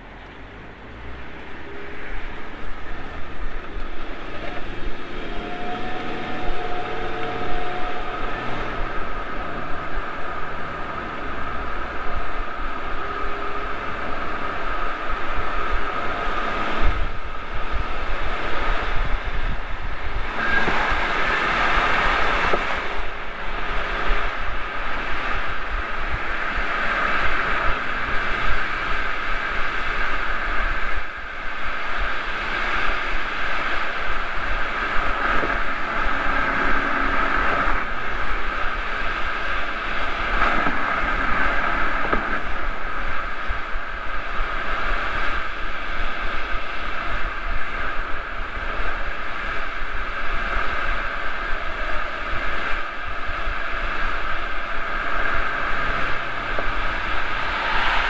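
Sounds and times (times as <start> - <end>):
wind and tyre noise: 0.0 - 58.0.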